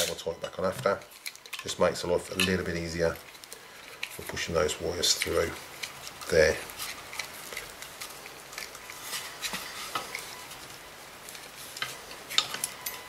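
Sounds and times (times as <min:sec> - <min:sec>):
plastic parts clicking and rustling: 0:00.0 - 0:07.8.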